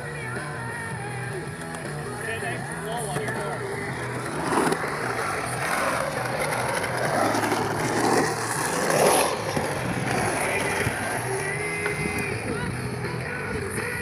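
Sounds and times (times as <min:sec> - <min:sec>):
skateboard wheels rolling on concrete: 0:00.0 - 0:14.0.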